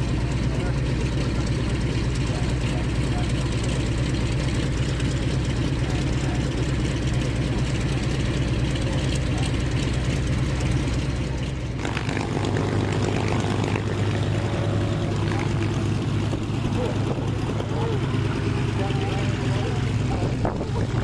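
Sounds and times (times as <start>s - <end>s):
aircraft engine idling: 0.0s - 21.0s
radial engine idling: 0.0s - 21.0s.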